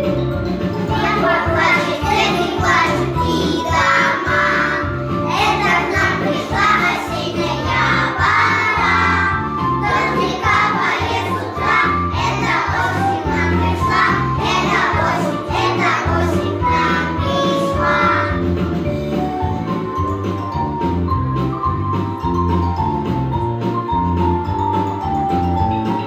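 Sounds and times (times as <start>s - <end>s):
instrumental backing track: 0.0s - 26.0s
children singing together: 0.8s - 18.5s.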